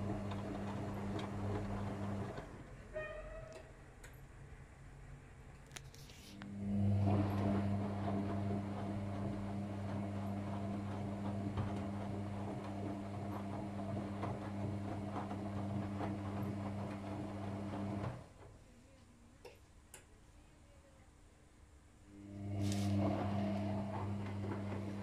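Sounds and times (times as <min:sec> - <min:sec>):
washing machine motor humming: 0:00.0 - 0:02.7, 0:06.4 - 0:18.4, 0:22.1 - 0:25.0.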